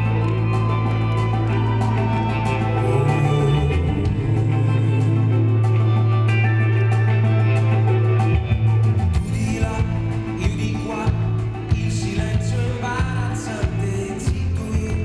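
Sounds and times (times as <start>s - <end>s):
live pop-rock band: 0.0s - 15.0s
man singing: 2.6s - 6.1s, 9.2s - 15.0s.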